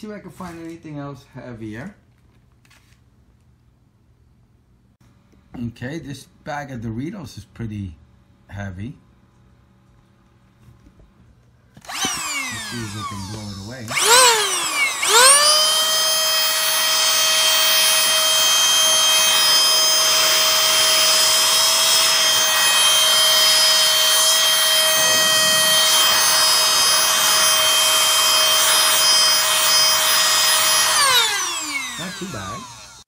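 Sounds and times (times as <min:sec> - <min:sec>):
electric air duster whine: 0:11.8 - 0:33.0.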